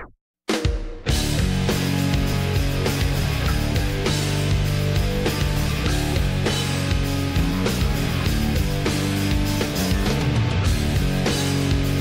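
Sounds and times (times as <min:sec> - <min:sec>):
rock music with guitar and drums: 0:00.5 - 0:12.0.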